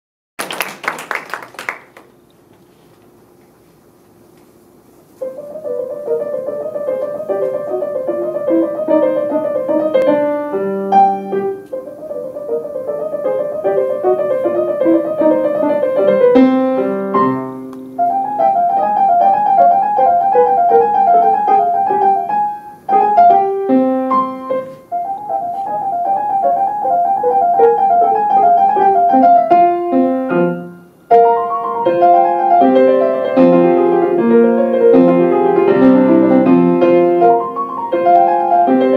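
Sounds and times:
solo grand piano: 5.0 - 38.9.

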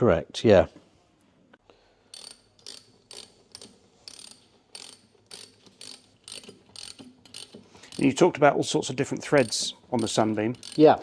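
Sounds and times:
ratchet spanner clicking: 2.1 - 8.2, 9.3 - 11.0.

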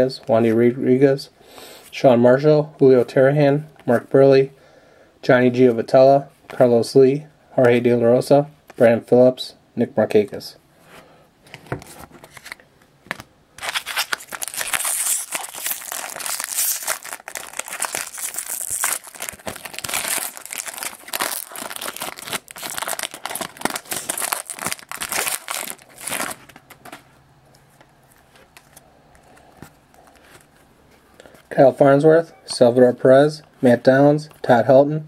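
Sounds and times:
foil wrapper tearing and crinkling: 13.6 - 26.9.

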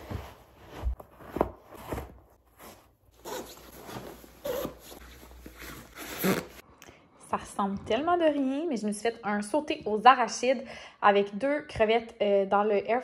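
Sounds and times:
boots scuffing and thumping: 0.0 - 5.9
down parka rustling: 0.0 - 6.6.

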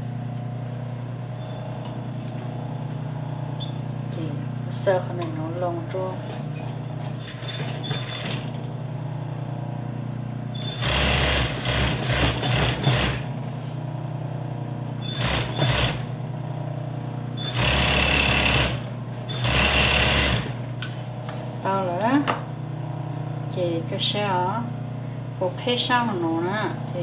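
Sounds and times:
steady low hum: 0.0 - 7.5, 8.1 - 10.7, 20.4 - 27.0
sewing machine stitching: 7.0 - 8.6, 10.6 - 13.3, 15.0 - 16.1, 17.4 - 20.6.

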